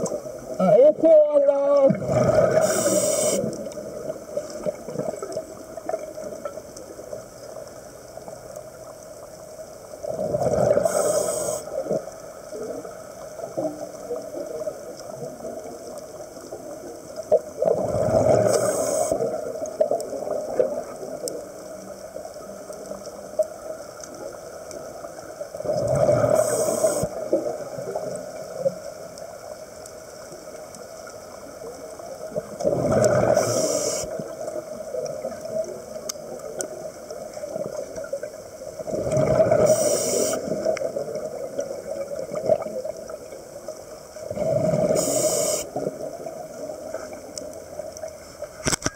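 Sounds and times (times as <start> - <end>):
steady underwater rush: 0.0 - 8.4, 9.8 - 28.7, 31.4 - 48.5
exhaled bubbles rushing: 1.9 - 6.4, 10.1 - 11.0, 17.6 - 21.1, 32.6 - 33.6, 38.8 - 39.8.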